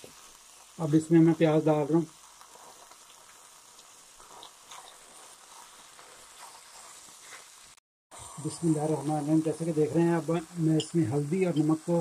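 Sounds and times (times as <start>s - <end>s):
meat and onion sizzling faintly: 0.0s - 12.0s
wooden spatula stirring: 2.4s - 7.6s.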